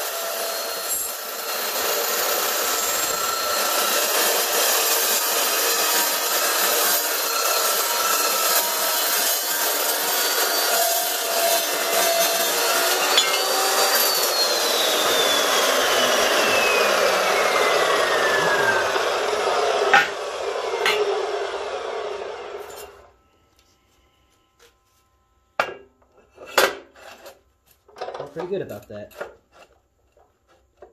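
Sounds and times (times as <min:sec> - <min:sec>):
saw blade grinding steel: 0:00.0 - 0:23.2, 0:25.6 - 0:27.4, 0:28.2 - 0:30.9
blade spinning down whine: 0:12.4 - 0:24.5
sharp metal clanks: 0:13.1 - 0:13.5.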